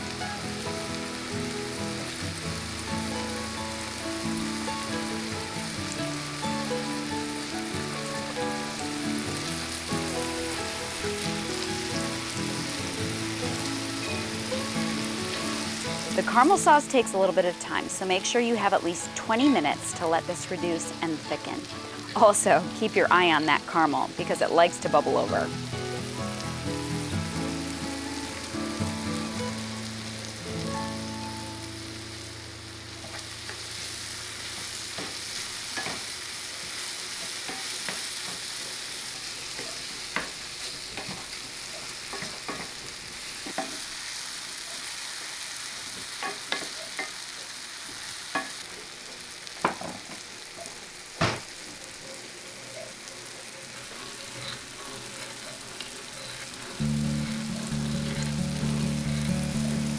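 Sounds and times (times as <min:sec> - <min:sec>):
soft music: 0:00.0 - 0:34.0, 0:52.9 - 0:59.9
apples sizzling in a skillet: 0:00.0 - 0:59.9.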